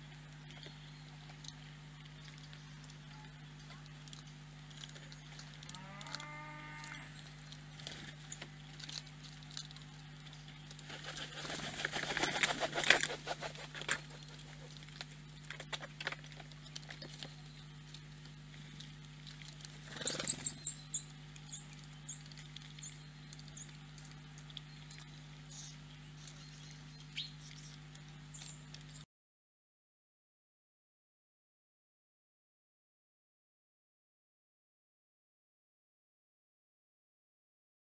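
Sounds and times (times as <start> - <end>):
steady low hum: 0.0 - 29.1
squirrel rustling and scratching: 7.1 - 20.8
pigeon wings flapping: 10.8 - 14.8.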